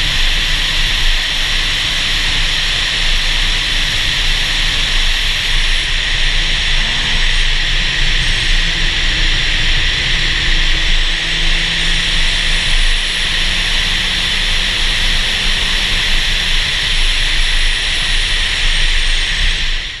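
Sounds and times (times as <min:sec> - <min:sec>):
low car rumble: 0:00.0 - 0:20.0
wind and road noise rushing: 0:00.0 - 0:20.0.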